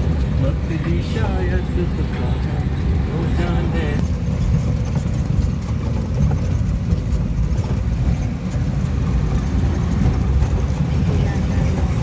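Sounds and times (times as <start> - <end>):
engine rumble: 0.0 - 12.0
body knocks and rattles: 4.0 - 12.0.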